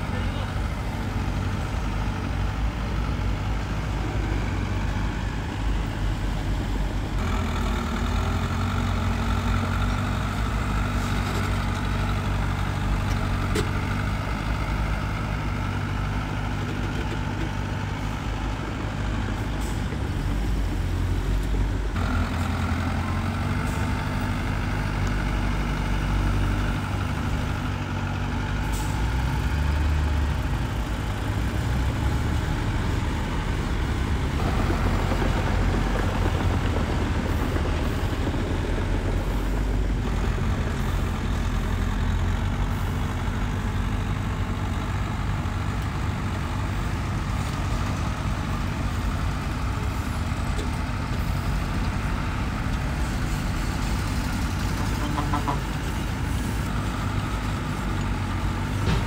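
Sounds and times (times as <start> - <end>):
heavy diesel engine running: 0.0 - 59.0.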